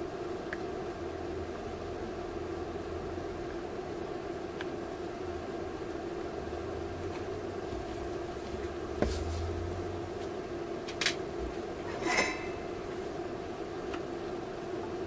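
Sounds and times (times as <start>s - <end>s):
steady background hum: 0.0s - 15.0s
short rattling scrape: 11.9s - 12.6s.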